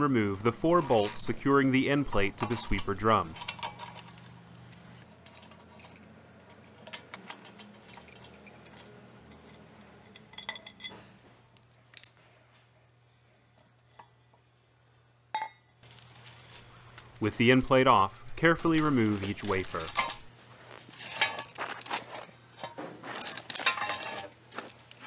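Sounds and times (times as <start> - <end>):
metallic clinks of wrench and bolts: 5.2 - 11.0.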